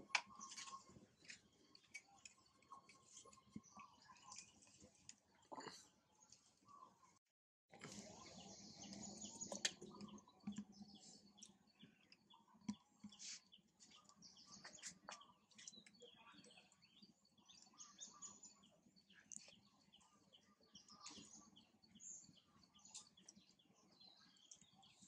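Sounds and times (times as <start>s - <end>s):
birds chirping: 0.0s - 7.2s, 7.8s - 25.0s.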